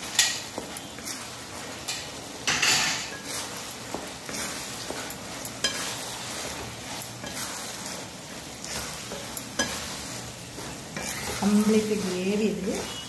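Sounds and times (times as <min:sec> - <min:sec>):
sauce sizzling in a pan: 0:00.0 - 0:13.0
spatula stirring in a pan: 0:00.0 - 0:13.0.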